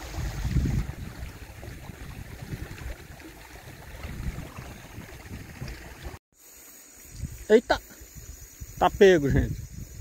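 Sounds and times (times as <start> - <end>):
river water flowing: 0.0 - 6.2.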